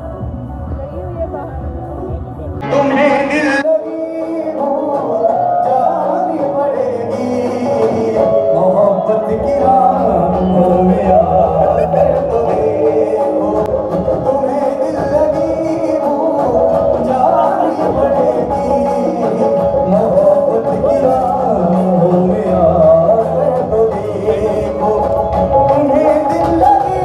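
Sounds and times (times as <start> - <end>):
song with singing voice: 2.5 - 27.0.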